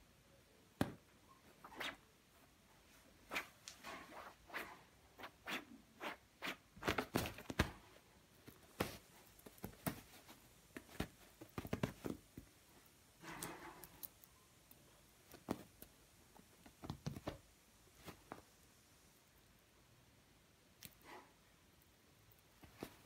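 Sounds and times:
kitten pouncing taps and scuffs: 0:06.8 - 0:12.6, 0:15.2 - 0:18.6.

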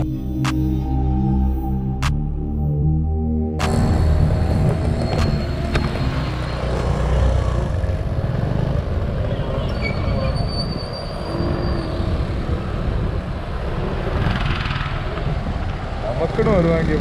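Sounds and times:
high-pitched squeal: 0:03.6 - 0:07.4, 0:09.2 - 0:12.6
heavy vehicle rumble: 0:03.6 - 0:17.0.

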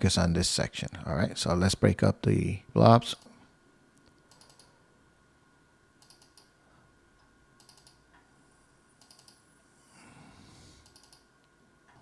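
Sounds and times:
computer mouse clicks: 0:04.3 - 0:04.7, 0:06.0 - 0:06.5, 0:07.6 - 0:08.0, 0:09.0 - 0:09.4, 0:10.8 - 0:11.3.

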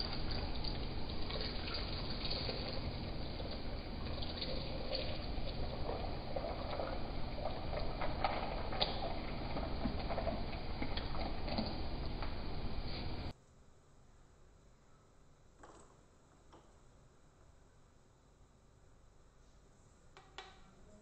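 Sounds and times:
juice pouring into a glass: 0:00.0 - 0:13.3.

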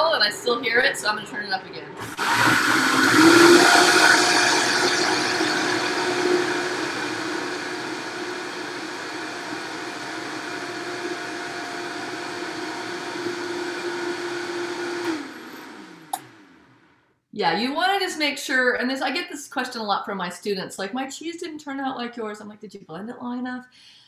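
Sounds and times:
countertop blender running on high: 0:02.0 - 0:16.8.

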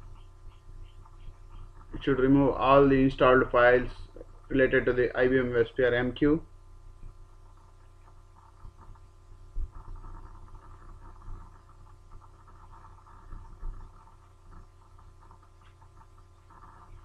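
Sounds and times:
low microphone hum: 0:00.0 - 0:17.0
soft low thumps: 0:06.6 - 0:17.0.

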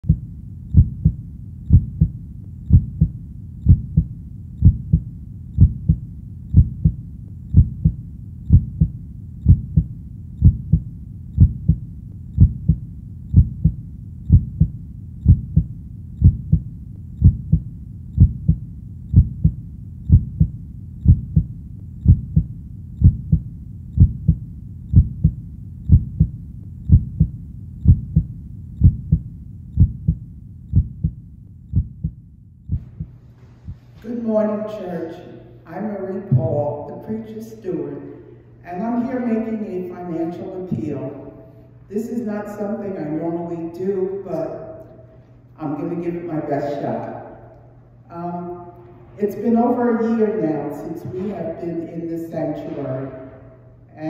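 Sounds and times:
heartbeat thumps: 0:00.0 - 0:34.0, 0:36.3 - 0:36.6.

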